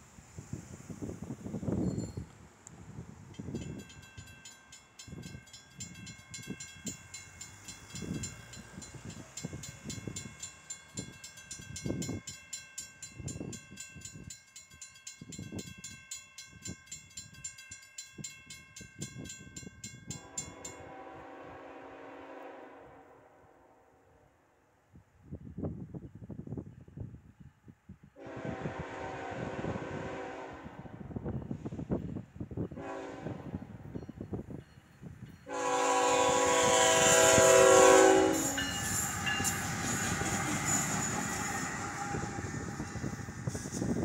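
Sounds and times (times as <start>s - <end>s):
railroad crossing bell ringing: 1.7s - 2.4s, 3.3s - 21.4s, 32.6s - 44.0s
locomotive horn: 20.2s - 23.9s, 28.2s - 31.0s, 32.8s - 33.7s, 35.5s - 42.5s.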